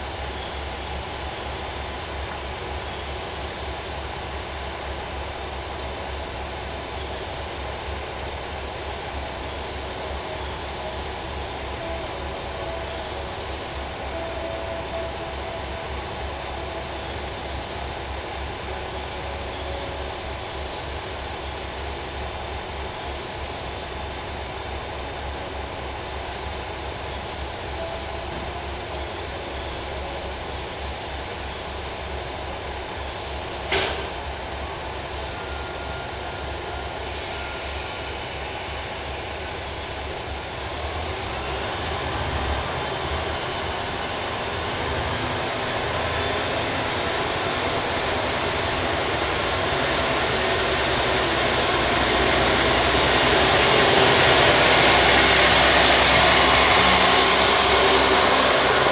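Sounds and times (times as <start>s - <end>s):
diesel railcar engine idling: 0.0s - 58.9s
air brake hiss: 35.1s - 39.4s.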